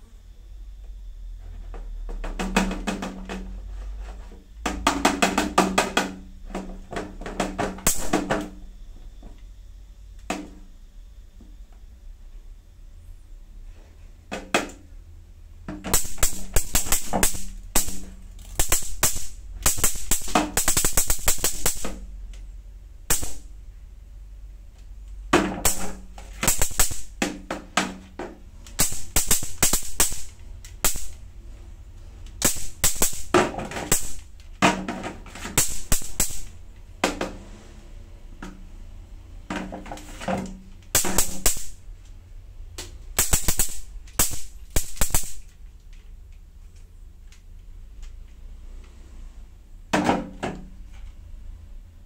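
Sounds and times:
mosquito racket zapping: 0:07.8 - 0:08.7, 0:15.9 - 0:22.3, 0:23.0 - 0:23.6, 0:25.5 - 0:31.3, 0:32.4 - 0:34.4, 0:35.2 - 0:36.7, 0:41.0 - 0:41.8, 0:43.2 - 0:45.5.

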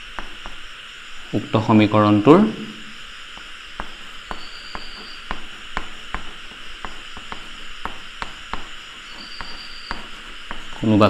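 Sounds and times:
chalk tapping on blackboard: 0:00.0 - 0:00.7, 0:03.3 - 0:10.9
steady background hiss: 0:00.0 - 0:11.0.

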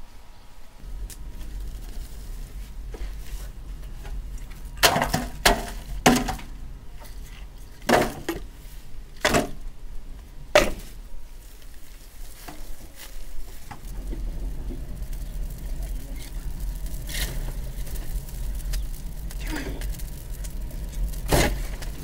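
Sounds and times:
logs clunking into metal wheelbarrow: 0:04.0 - 0:08.5, 0:09.2 - 0:09.6, 0:10.5 - 0:11.0, 0:17.1 - 0:22.0.

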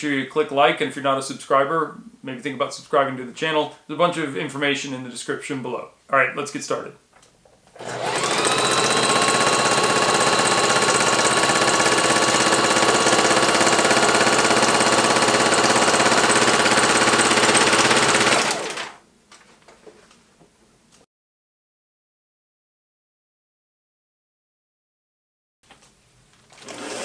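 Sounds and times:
sewing machine whining: 0:07.8 - 0:19.0, 0:26.6 - 0:27.0.

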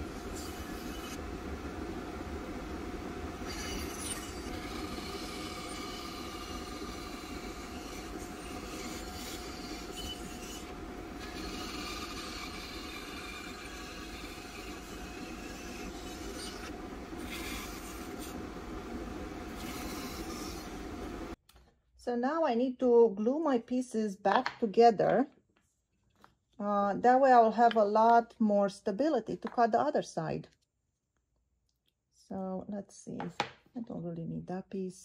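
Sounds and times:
bandsaw cutting wood hiss: 0:00.0 - 0:01.3, 0:03.2 - 0:21.4
bandsaw running hum: 0:00.0 - 0:21.4.

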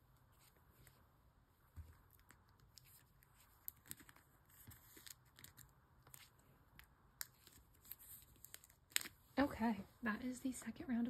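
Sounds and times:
plastic card sleeves rustling: 0:01.8 - 0:09.3.

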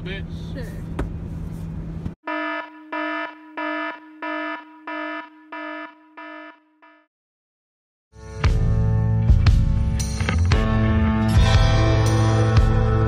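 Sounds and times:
electronic alarm buzzer beeping: 0:02.2 - 0:07.1.

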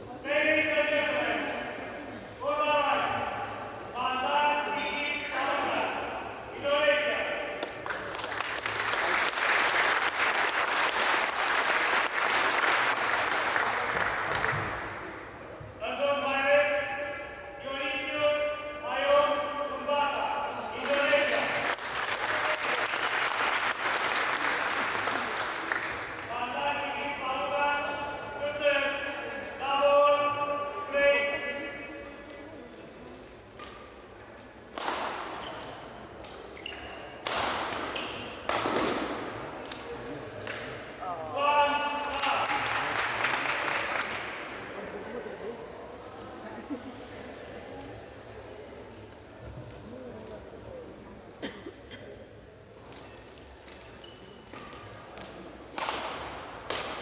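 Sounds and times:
audience clapping: 0:07.6 - 0:14.8, 0:20.8 - 0:26.3, 0:42.0 - 0:44.6
rackets striking shuttlecock: 0:34.7 - 0:40.8, 0:54.5 - 0:57.0
shoes squeaking on court floor: 0:35.4 - 0:37.2, 0:37.9 - 0:38.4, 0:53.0 - 0:55.0.

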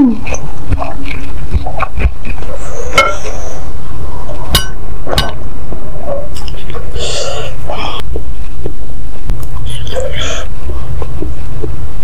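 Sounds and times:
close eating noises: 0:00.0 - 0:12.0
spoon clinking ceramic bowl: 0:04.6 - 0:05.4.

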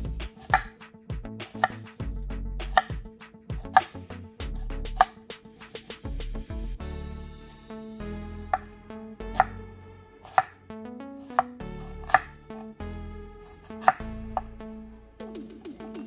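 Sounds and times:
background music: 0:00.0 - 0:16.0
knife chopping on board: 0:00.2 - 0:00.8, 0:01.5 - 0:01.9, 0:02.6 - 0:04.0, 0:13.8 - 0:14.0.

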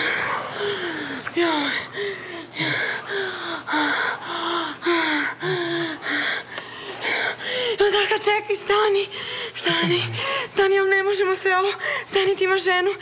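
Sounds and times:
heavy breathing: 0:00.0 - 0:07.8.

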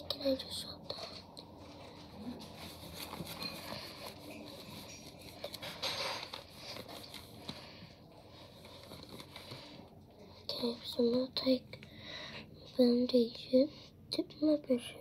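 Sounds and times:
makeup items being handled: 0:00.9 - 0:11.2.

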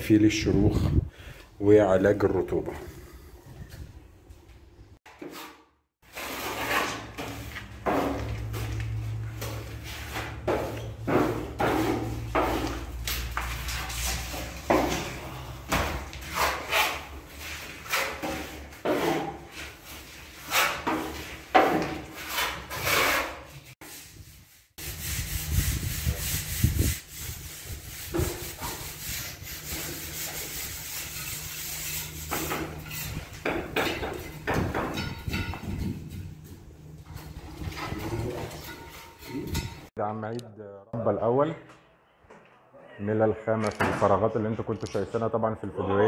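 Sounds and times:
hand tool scraping concrete: 0:05.1 - 0:15.0, 0:15.9 - 0:24.2, 0:24.9 - 0:36.2, 0:37.2 - 0:39.9.

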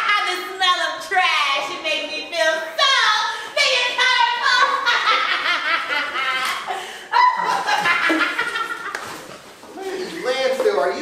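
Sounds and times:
children laughing and chattering: 0:03.6 - 0:10.4.

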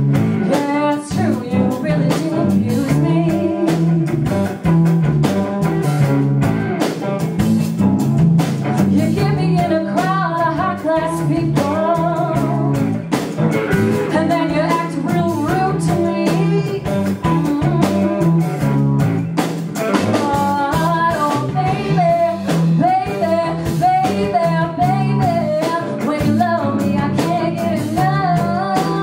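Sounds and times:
drum kit: 0:00.0 - 0:29.0
electric guitar: 0:00.0 - 0:29.0
woman singing: 0:00.4 - 0:04.5, 0:08.8 - 0:12.9, 0:14.1 - 0:18.7, 0:20.0 - 0:29.0.

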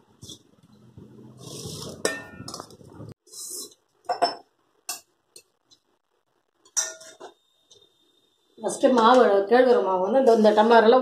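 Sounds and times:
steel bowls clinking: 0:01.8 - 0:02.8, 0:06.6 - 0:07.4.

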